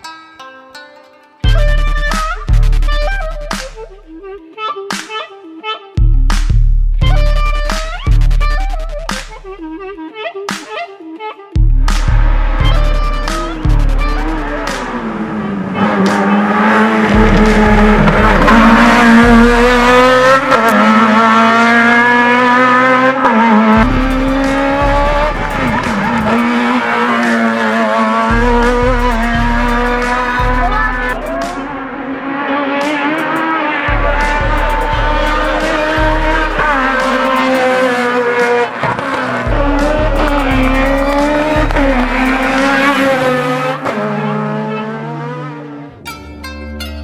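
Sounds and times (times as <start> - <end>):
music with stepped bass line: 1.4 - 5.3, 6.0 - 10.9, 11.6 - 22.4, 23.7 - 43.7
race car engine revving: 11.7 - 46.0.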